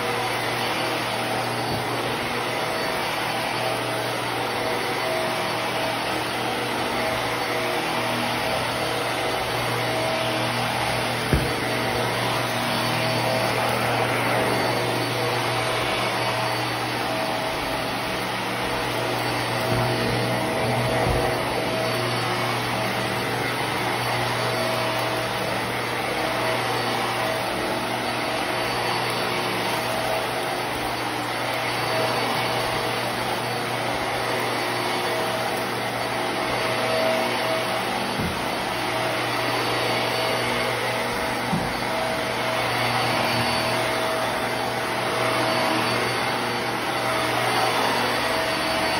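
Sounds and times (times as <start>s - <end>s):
vacuum cleaner motor hum: 0.0s - 48.9s.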